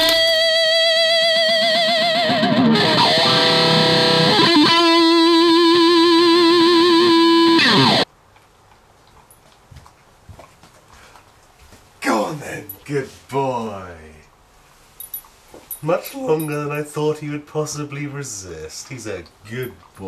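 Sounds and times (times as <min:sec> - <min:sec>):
distorted electric guitar: 0:00.0 - 0:08.1.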